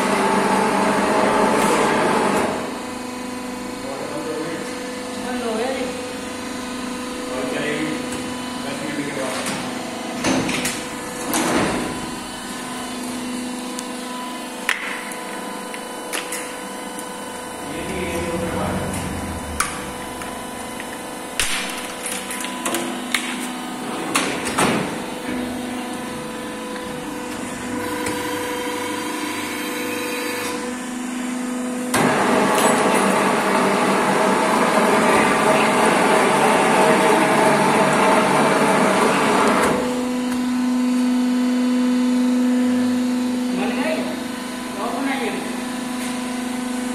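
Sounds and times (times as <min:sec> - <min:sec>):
harsh rushing whir: 0:17.4 - 0:21.5.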